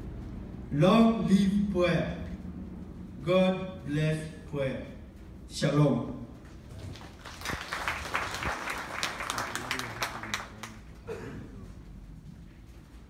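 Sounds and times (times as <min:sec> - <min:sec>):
audience applause: 0:06.8 - 0:11.0.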